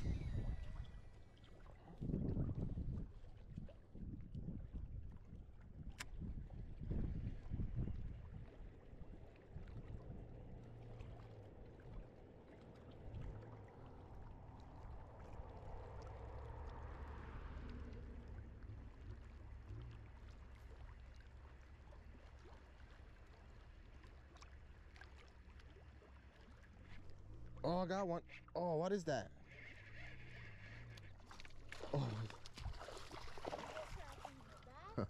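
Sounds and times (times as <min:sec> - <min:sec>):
wind rumble on microphone: 0:00.0 - 0:12.2, 0:12.9 - 0:20.8
soft water sounds: 0:00.0 - 0:35.0.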